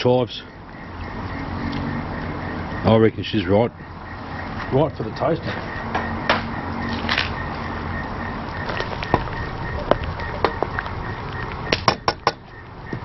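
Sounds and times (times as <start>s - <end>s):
wood fire crackling: 0.0s - 3.2s, 3.8s - 13.0s
fire pops: 8.1s - 13.0s.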